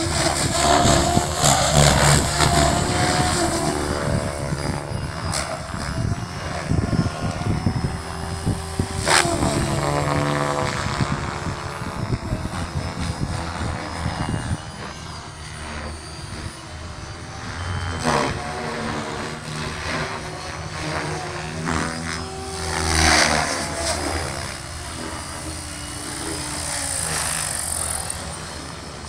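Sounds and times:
helicopter whooshes: 0:00.0 - 0:29.0
high whine: 0:00.0 - 0:29.0
rotor hum: 0:00.0 - 0:29.0.

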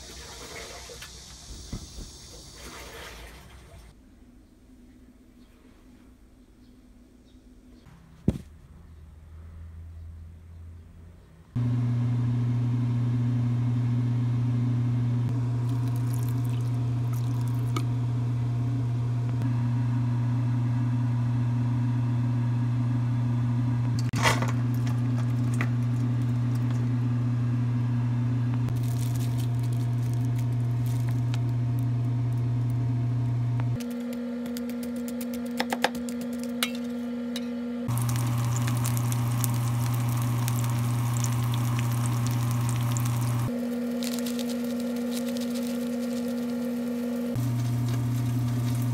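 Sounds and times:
appliance motor hum: 0:11.6 - 0:48.9.

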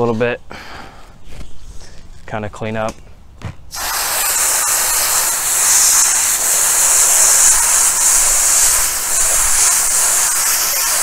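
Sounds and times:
garden hose spraying water: 0:03.7 - 0:11.0.

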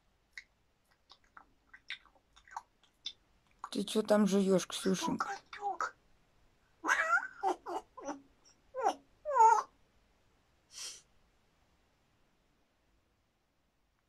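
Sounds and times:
parrot calls: 0:05.1 - 0:06.0, 0:06.8 - 0:09.7
parrot hiss: 0:10.7 - 0:11.1.

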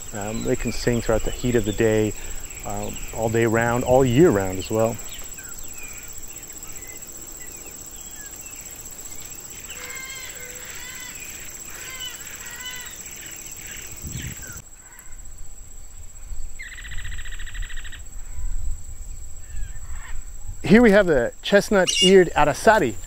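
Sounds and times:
blackbirds whistling calls: 0:00.0 - 0:15.1, 0:21.8 - 0:22.5
insect drone: 0:00.0 - 0:23.0.

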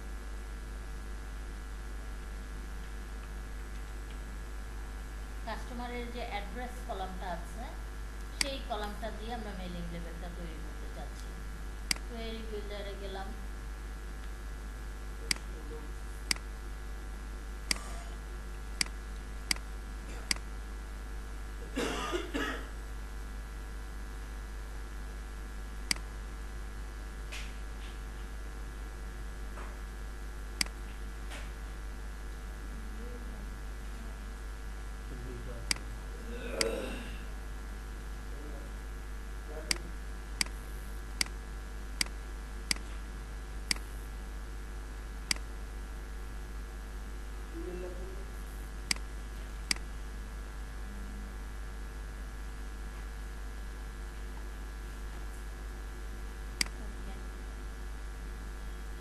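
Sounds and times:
steady low hum: 0:00.0 - 0:59.0
computer mouse clicks: 0:17.7 - 0:17.9, 0:39.7 - 0:40.6, 0:42.0 - 0:42.9, 0:45.3 - 0:45.5
person coughing: 0:21.7 - 0:22.7, 0:36.4 - 0:37.3.

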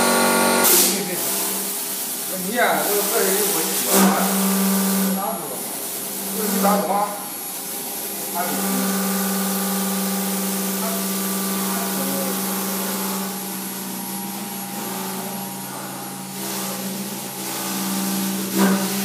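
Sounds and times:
router spindle humming: 0:00.0 - 0:00.7, 0:07.8 - 0:19.0
high hiss of cutting styrofoam: 0:00.6 - 0:07.0.

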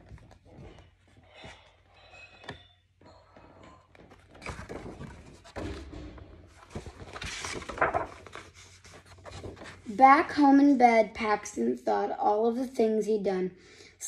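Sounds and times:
book pages turning: 0:03.9 - 0:05.8, 0:06.5 - 0:09.9
paper rustling: 0:04.0 - 0:09.9.

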